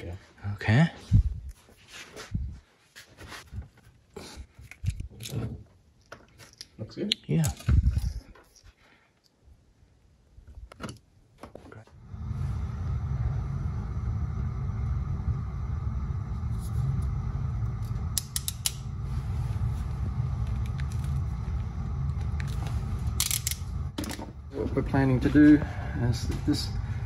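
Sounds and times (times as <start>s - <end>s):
low mechanical rumble: 11.9s - 27.0s.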